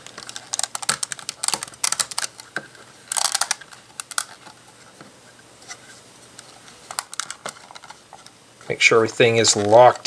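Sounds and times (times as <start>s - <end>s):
plastic bricks clicking: 0.0s - 4.6s, 6.9s - 8.0s.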